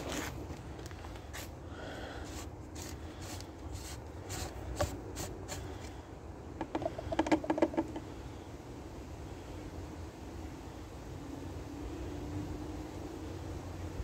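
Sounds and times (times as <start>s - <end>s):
plastic cap rubbing and scraping: 2.2s - 5.9s, 6.6s - 8.1s.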